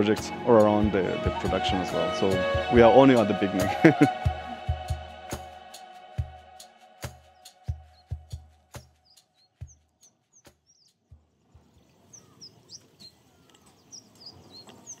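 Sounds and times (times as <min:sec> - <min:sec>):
background music drum beats: 0:00.0 - 0:11.7
small birds chirping: 0:07.3 - 0:15.0.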